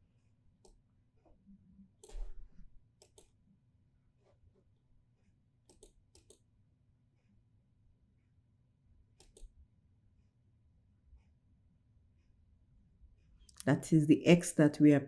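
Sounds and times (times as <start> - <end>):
mouse and keyboard clicks: 2.0 - 2.3, 3.0 - 3.4, 5.7 - 6.4, 9.2 - 9.5.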